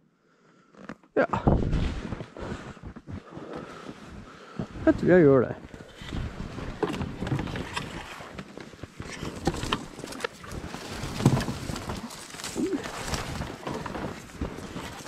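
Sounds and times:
branches scraping against clothing: 0:05.8 - 0:15.0
footsteps crunching in deep snow: 0:06.2 - 0:15.0.

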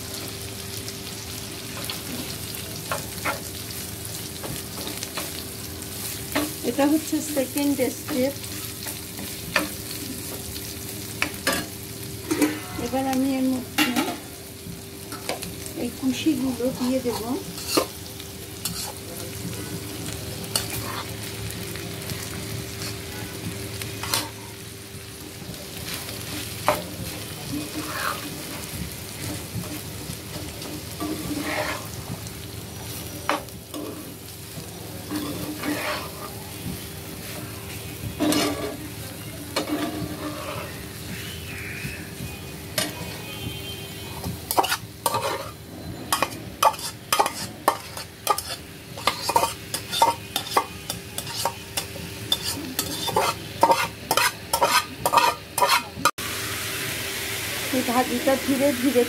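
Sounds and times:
vegetables sizzling in oil: 0:00.0 - 0:59.0
metal spatula scraping pan: 0:11.4 - 0:13.1, 0:16.8 - 0:17.9, 0:27.6 - 0:28.6, 0:30.6 - 0:32.0, 0:35.0 - 0:36.4, 0:38.2 - 0:38.9, 0:39.6 - 0:41.9, 0:44.1 - 0:56.1.

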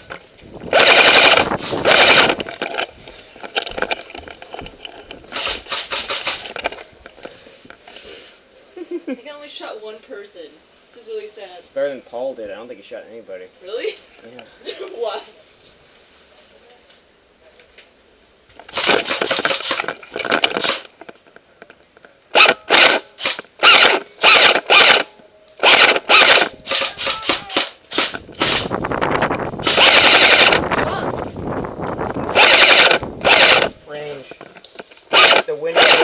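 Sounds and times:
airsoft rifle firing bursts: 0:00.7 - 0:02.8, 0:18.7 - 0:20.8, 0:22.3 - 0:28.7, 0:29.6 - 0:30.6, 0:32.3 - 0:33.7, 0:35.1 - 0:36.0.

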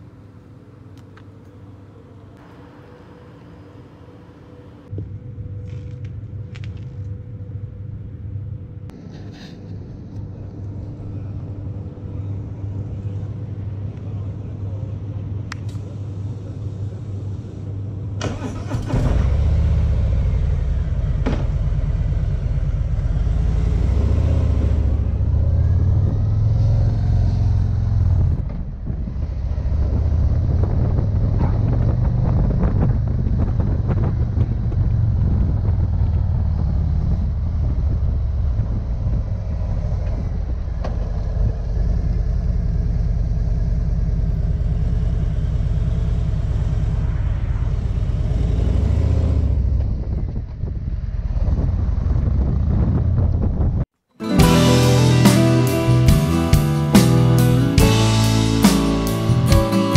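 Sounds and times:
motorcycle engine running: 0:19.2 - 0:53.7, 0:54.4 - 0:59.9.

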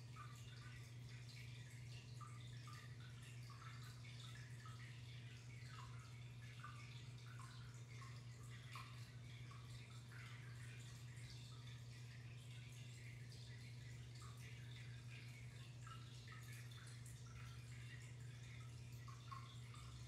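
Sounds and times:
steady low hum: 0:00.0 - 0:20.0
water trickling and dripping: 0:00.0 - 0:20.0.

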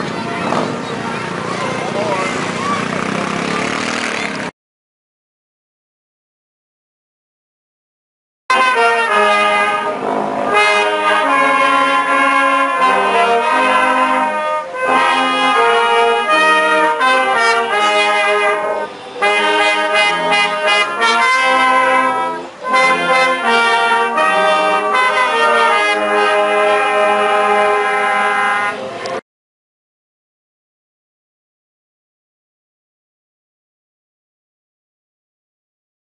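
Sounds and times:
brass band playing: 0:08.5 - 0:29.0.

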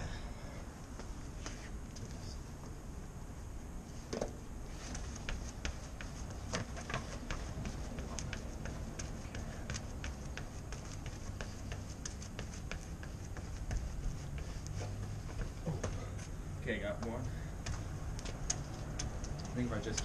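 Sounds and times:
steady low rumble: 0:00.0 - 0:20.0
unicycle tyre tapping on bricks: 0:04.1 - 0:20.0.

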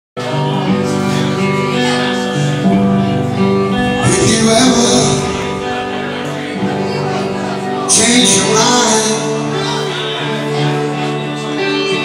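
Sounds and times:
bass guitar: 0:00.2 - 0:12.0
electric guitar: 0:00.2 - 0:12.0
drums: 0:03.2 - 0:09.7
cymbal crash: 0:03.8 - 0:07.1.

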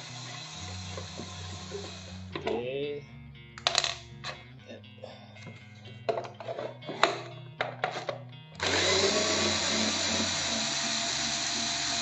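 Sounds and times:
cordless drill driving a screw: 0:00.0 - 0:02.3, 0:08.6 - 0:12.0.

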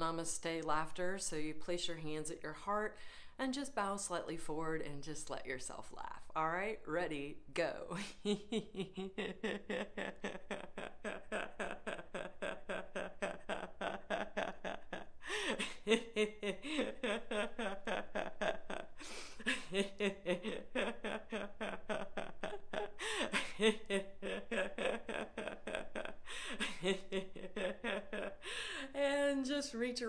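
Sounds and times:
woman laughing heartily: 0:08.0 - 0:28.9.

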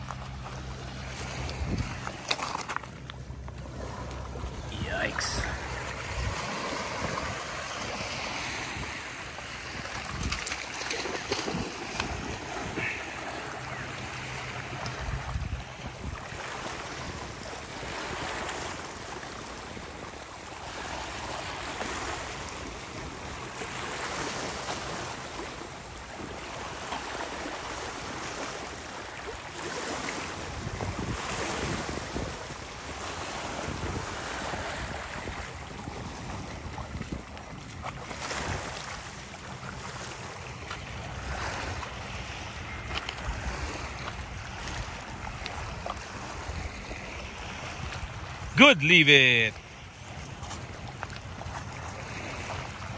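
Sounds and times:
wind buffeting microphone: 0:30.4 - 0:32.6, 0:33.6 - 0:38.6.

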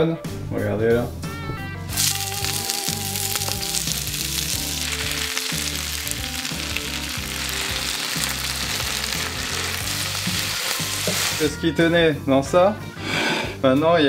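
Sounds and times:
spinach sizzling in oil: 0:01.9 - 0:11.6
wooden spoon turning food: 0:01.9 - 0:11.6.

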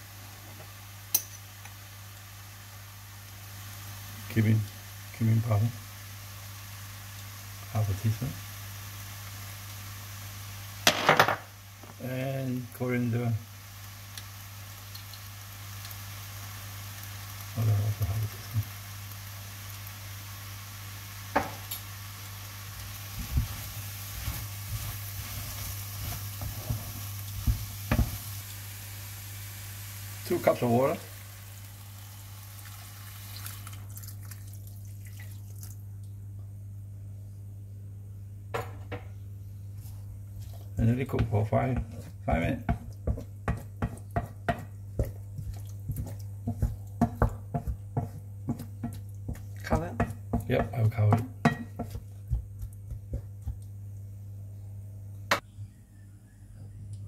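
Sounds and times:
vegetables sizzling in a pan: 0:00.0 - 0:34.9, 0:39.7 - 0:54.0
low steady hum: 0:00.0 - 0:57.0
spatula knocking and scraping pan: 0:23.2 - 0:28.4, 0:39.8 - 0:53.7
steady low hum: 0:35.5 - 0:57.0.

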